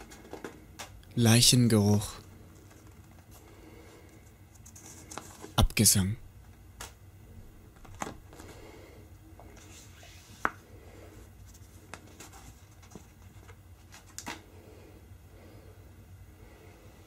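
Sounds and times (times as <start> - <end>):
faint low hum: 0.0 - 17.0
paper card rustling and scraping: 2.5 - 5.6, 9.4 - 10.6, 11.4 - 14.4.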